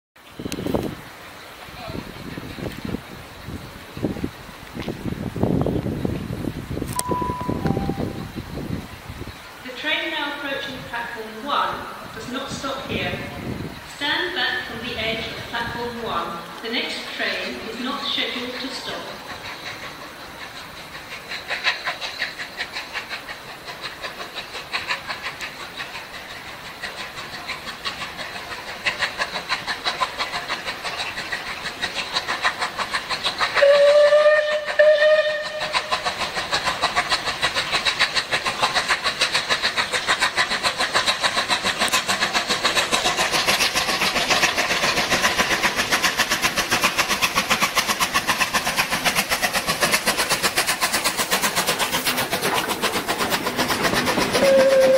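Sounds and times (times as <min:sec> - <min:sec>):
steam locomotive exhaust beat: 0:00.2 - 0:54.9
steam whistle blasts: 0:07.0 - 0:08.3, 0:33.6 - 0:35.7, 0:54.4 - 0:54.9.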